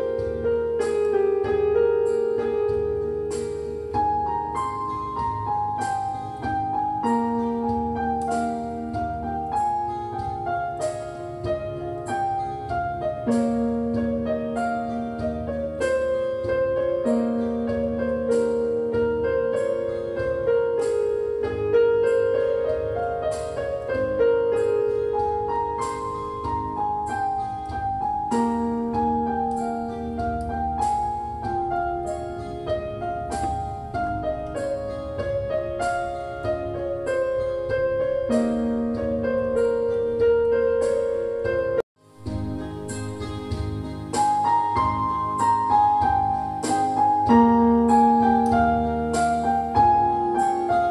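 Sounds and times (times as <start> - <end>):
piano music: 0.0 - 50.9.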